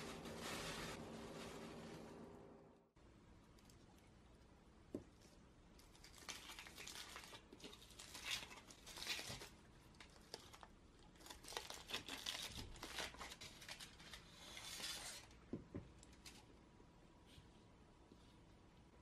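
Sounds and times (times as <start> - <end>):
aluminium foil crinkling: 0.0 - 2.2, 5.2 - 15.4.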